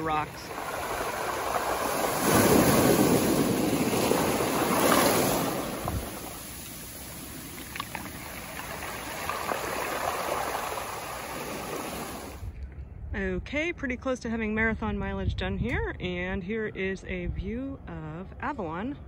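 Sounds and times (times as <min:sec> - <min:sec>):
water draining through stones: 0:00.0 - 0:12.4
wave breaking on cobbles: 0:00.0 - 0:12.4.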